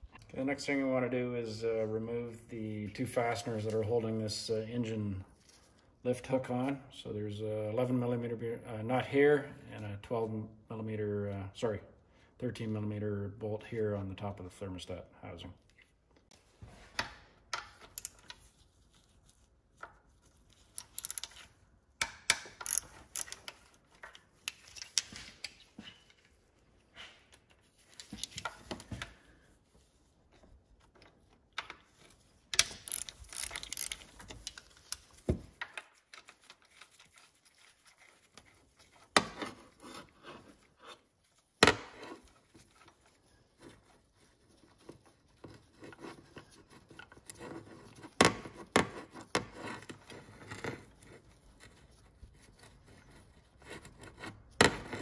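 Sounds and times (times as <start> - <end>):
ratchet rasping clicks: 20.8 - 21.4, 22.3 - 23.4, 32.6 - 34.6.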